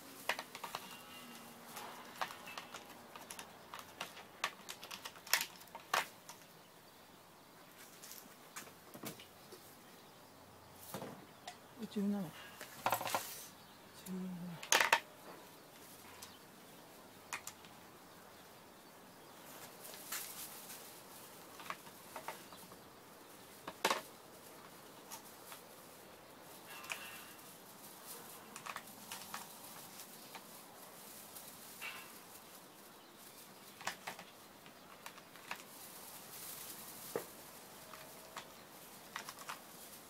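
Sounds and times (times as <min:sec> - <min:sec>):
metal tools clinking: 0:26.7 - 0:27.4.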